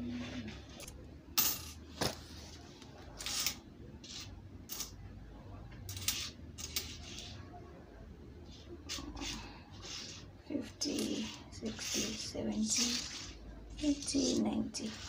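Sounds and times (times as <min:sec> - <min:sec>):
coins clicking on wooden counter: 0:00.7 - 0:01.8, 0:03.2 - 0:05.0, 0:05.9 - 0:07.3, 0:10.8 - 0:15.0.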